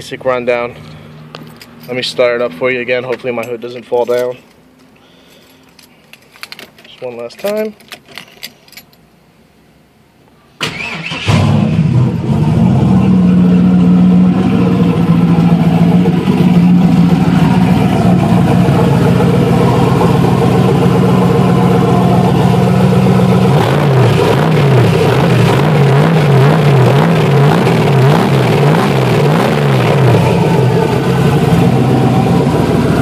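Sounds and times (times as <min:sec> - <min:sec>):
keys jingling: 0:05.3 - 0:09.0
car engine idling: 0:10.6 - 0:33.0.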